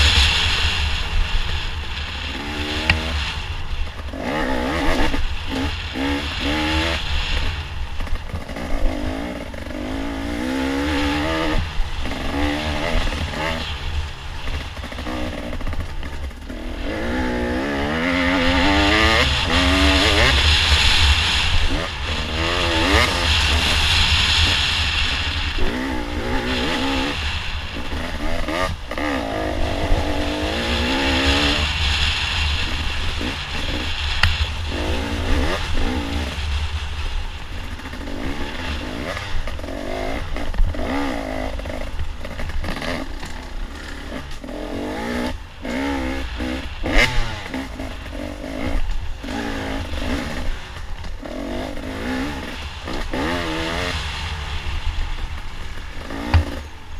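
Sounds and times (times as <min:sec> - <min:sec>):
dirt bike engine revving: 0:00.0 - 0:56.9
wind rumble on microphone: 0:00.0 - 0:56.9.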